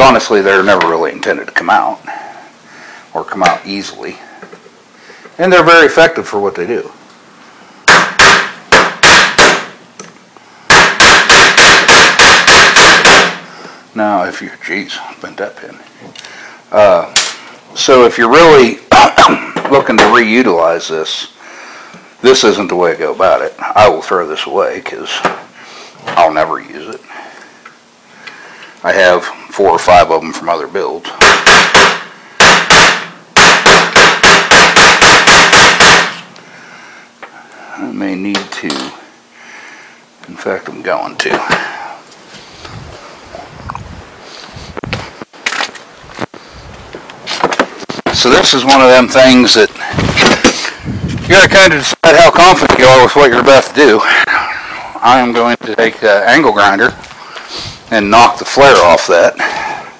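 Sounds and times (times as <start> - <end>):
hammer striking steel pin: 7.9 - 9.7, 10.7 - 13.4, 31.2 - 36.2.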